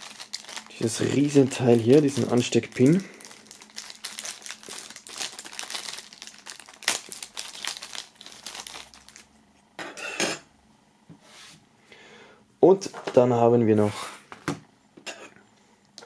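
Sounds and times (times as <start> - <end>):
plastic film crinkling: 0.0 - 9.4.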